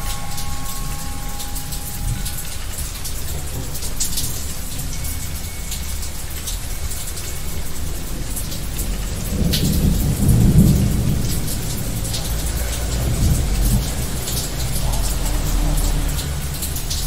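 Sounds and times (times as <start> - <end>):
steady rain: 0.0 - 17.0
low rumble of thunder: 7.9 - 17.0.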